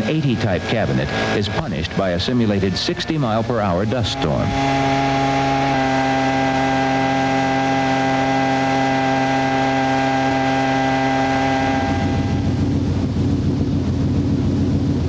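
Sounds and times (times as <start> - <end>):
blower drone: 0.0 - 15.0
gusting wind: 0.0 - 15.0
rush of air: 11.8 - 15.0.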